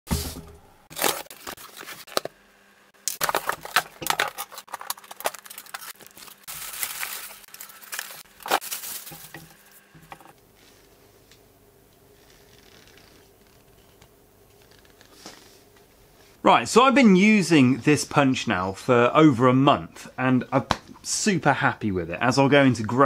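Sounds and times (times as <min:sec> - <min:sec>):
cardboard box tearing: 0:00.9 - 0:02.2
plastic wrapping crinkling: 0:00.9 - 0:02.3, 0:03.0 - 0:10.3
knocks and clinks of handling: 0:03.2 - 0:10.3.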